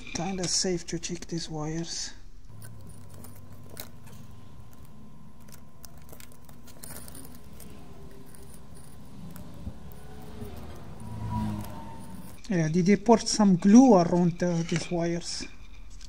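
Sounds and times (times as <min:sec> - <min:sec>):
light clicks and rattles of handling: 0:02.5 - 0:11.0
low hum: 0:02.5 - 0:12.4.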